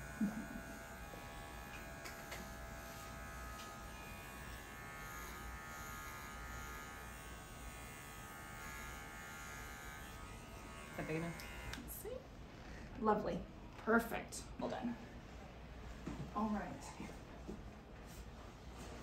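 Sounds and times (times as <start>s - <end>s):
electric pet clippers buzzing: 0.0s - 12.0s.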